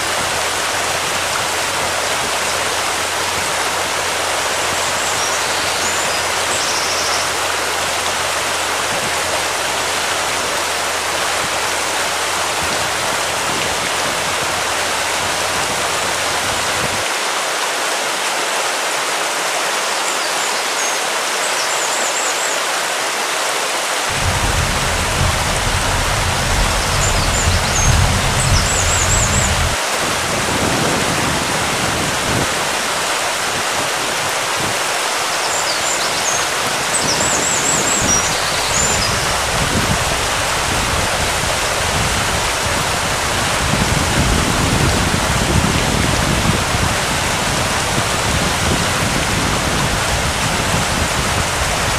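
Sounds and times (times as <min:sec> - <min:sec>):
wind: 0:00.0 - 0:51.9
deep rumble: 0:24.1 - 0:29.8.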